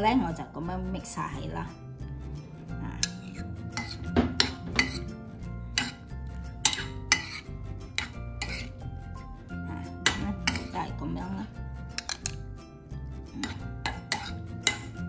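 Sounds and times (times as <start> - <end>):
background music: 0.0 - 15.0
metal spoon scraping ceramic bowl: 2.9 - 9.0, 9.7 - 10.9, 11.9 - 12.5, 13.3 - 15.0.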